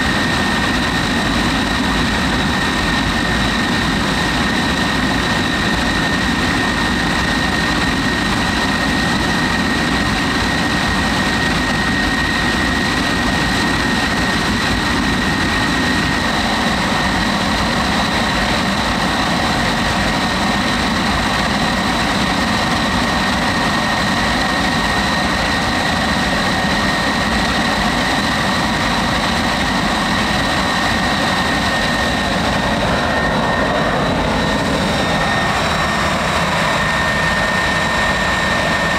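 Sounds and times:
high-pitched jet whine: 0:00.0 - 0:38.9
jet engine rushing: 0:00.0 - 0:38.9.

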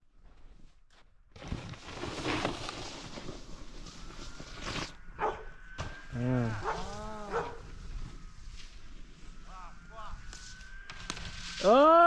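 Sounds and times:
snowboard scraping over snow: 0:01.4 - 0:09.3, 0:10.3 - 0:12.0
dog yelping: 0:05.2 - 0:05.5, 0:06.6 - 0:07.6.

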